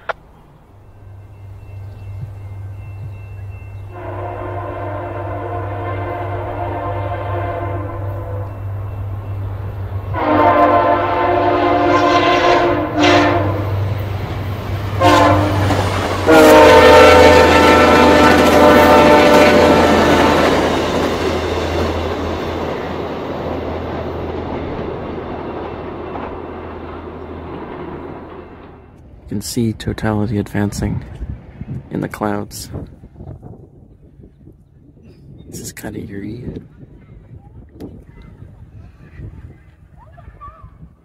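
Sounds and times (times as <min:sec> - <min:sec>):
passing train rumble and clatter: 0:00.0 - 0:41.0
train horn blasts: 0:02.0 - 0:09.0, 0:10.0 - 0:14.1, 0:15.0 - 0:22.7.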